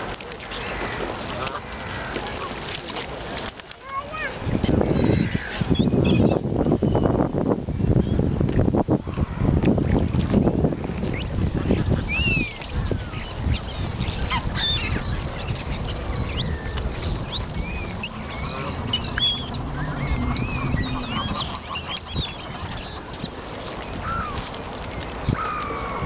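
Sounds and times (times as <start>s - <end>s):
birds chirping and squawking: 4.6s - 7.1s, 11.0s - 24.5s
low rumble: 17.0s - 21.6s.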